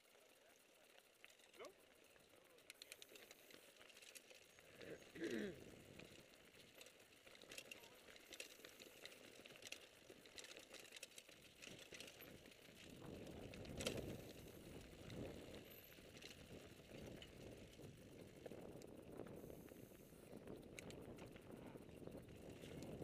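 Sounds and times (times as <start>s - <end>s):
bike rattling and clicking: 0.0s - 23.0s.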